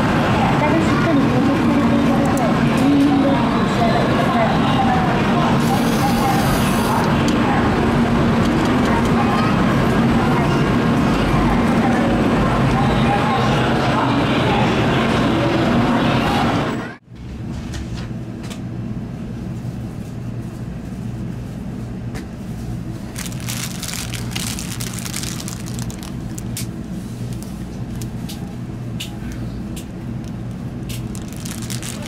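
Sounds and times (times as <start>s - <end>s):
station platform noise: 0.0s - 19.2s
train interior rumble: 0.0s - 32.0s.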